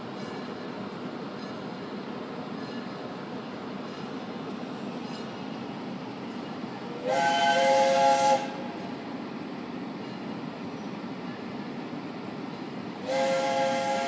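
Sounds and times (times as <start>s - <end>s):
locomotive hiss and rumble: 0.0s - 14.0s
steam locomotive chime whistle: 7.0s - 8.9s, 13.0s - 14.0s.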